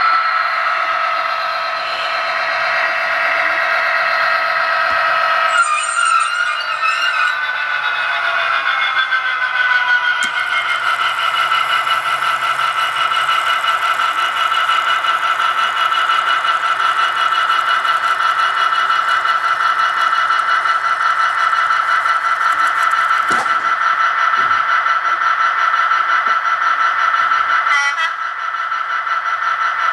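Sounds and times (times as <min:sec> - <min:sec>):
electric motor whining: 0:09.6 - 0:23.8.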